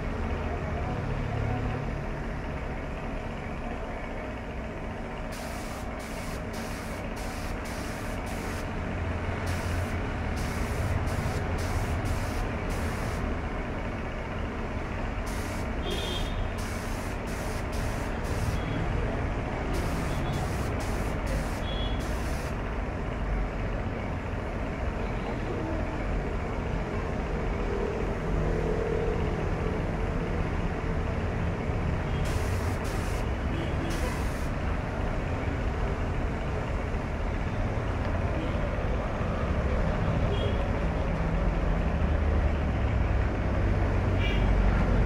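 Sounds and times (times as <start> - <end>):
spray gun air hiss bursts: 5.3 - 8.8, 9.4 - 13.3, 15.2 - 18.8, 19.7 - 22.6, 32.2 - 34.6.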